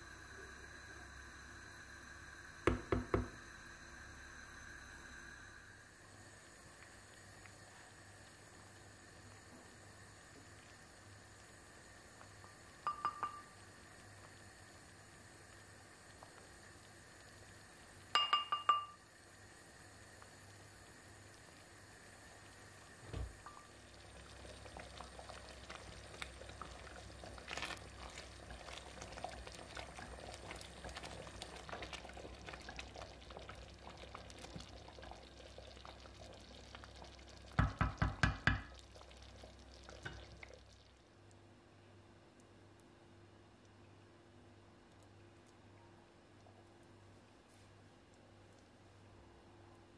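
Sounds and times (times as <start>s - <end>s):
syrup simmering and bubbling: 0.0s - 49.6s
spoon knocking against pot: 12.9s - 13.5s, 18.2s - 19.0s, 37.6s - 38.7s.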